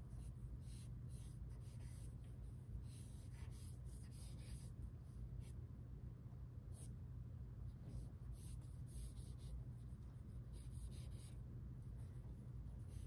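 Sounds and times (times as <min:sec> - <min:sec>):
pencil scratching on paper: 0:00.0 - 0:04.8, 0:07.8 - 0:13.0
low steady hum: 0:00.0 - 0:13.0.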